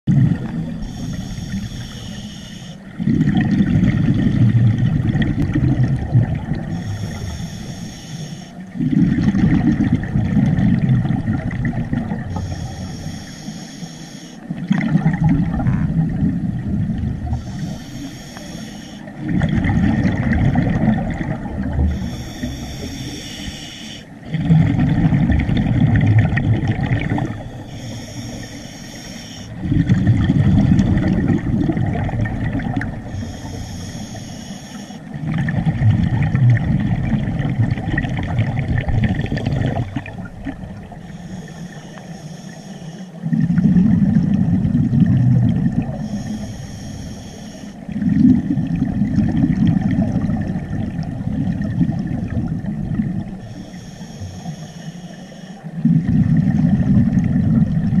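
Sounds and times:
exhaled bubbles underwater: 0.0s - 54.8s, 55.4s - 58.0s
hissing regulator inhale: 0.7s - 2.9s, 6.7s - 8.6s, 12.3s - 14.5s, 17.2s - 19.2s, 21.6s - 24.2s, 27.2s - 30.8s, 33.0s - 35.2s, 40.8s - 43.4s, 45.8s - 47.9s, 53.3s - 55.9s.

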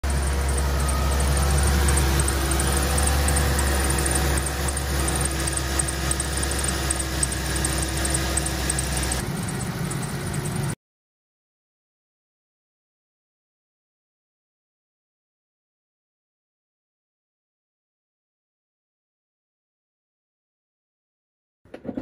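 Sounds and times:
car engine idling hum: 0.0s - 10.8s.

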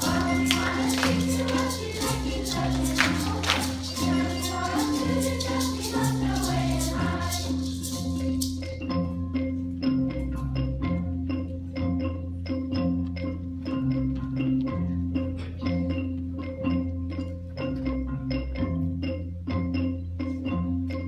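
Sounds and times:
children's choir singing: 0.0s - 8.7s
rattling hand percussion: 0.0s - 21.0s.

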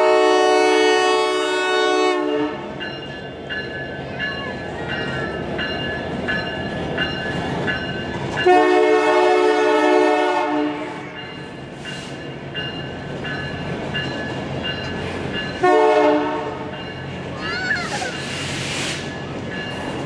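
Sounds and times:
locomotive air horn: 0.0s - 2.8s, 8.4s - 11.0s, 15.6s - 16.7s
freight train rumbling by: 0.0s - 20.0s.

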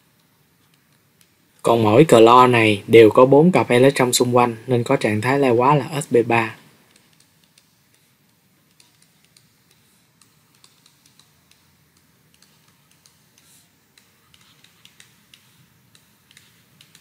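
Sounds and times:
stylus tapping on tablet: 6.9s - 17.0s.

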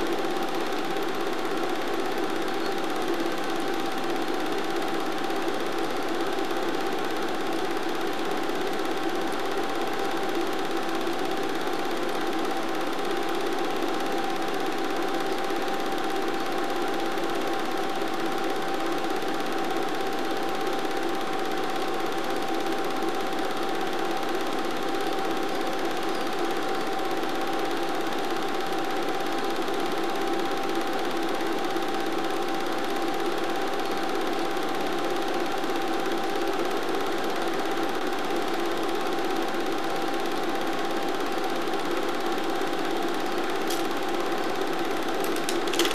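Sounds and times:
film projector whirring: 0.0s - 45.9s.

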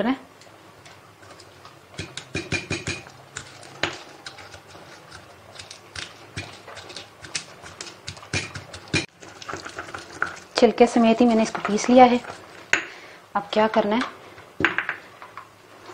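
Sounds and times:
pestle pounding in stone mortar: 2.0s - 9.1s.

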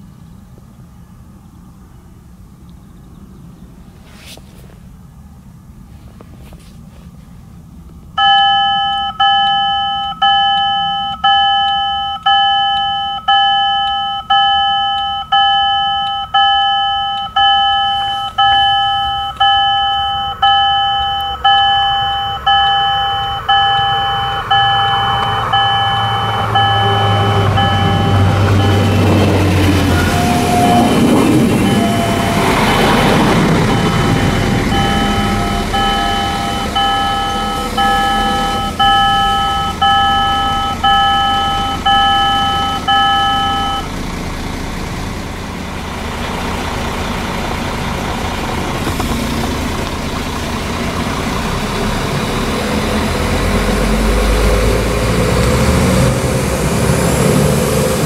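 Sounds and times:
level crossing warning bell: 8.2s - 43.9s
passenger train passing: 22.4s - 40.9s.

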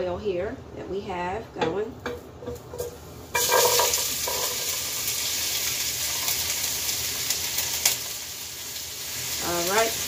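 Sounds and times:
vegetables sizzling in hot oil: 2.5s - 10.0s.

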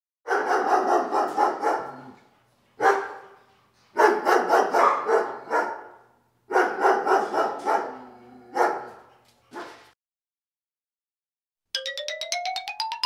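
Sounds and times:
dog barking: 0.3s - 2.2s, 2.8s - 3.4s, 4.0s - 10.0s.

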